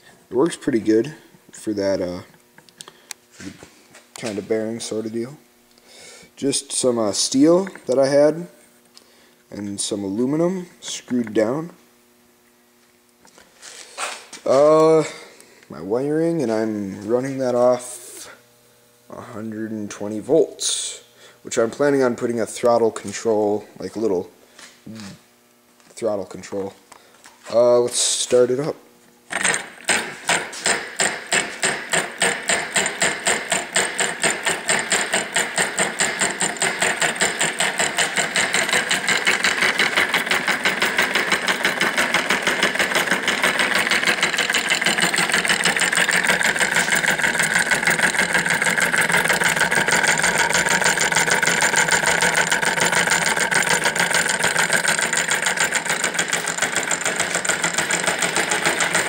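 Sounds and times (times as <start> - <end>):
solenoid engine clacking: 29.3 - 59.0.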